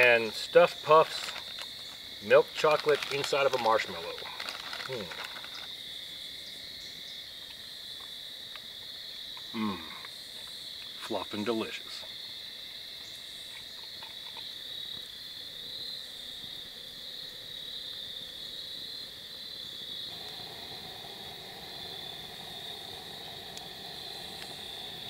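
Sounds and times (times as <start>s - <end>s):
insects trilling: 0.0s - 25.0s
low steady drone: 20.1s - 25.0s.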